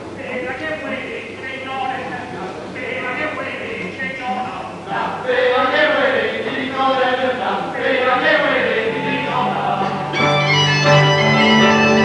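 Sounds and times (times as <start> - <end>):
choir singing: 4.9 - 12.0
instruments playing: 7.8 - 12.0.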